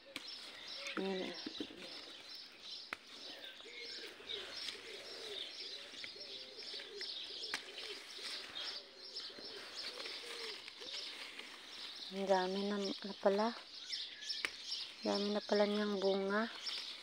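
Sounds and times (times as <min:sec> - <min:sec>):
small birds chirping: 0:00.0 - 0:17.0
dove cooing: 0:03.2 - 0:13.0.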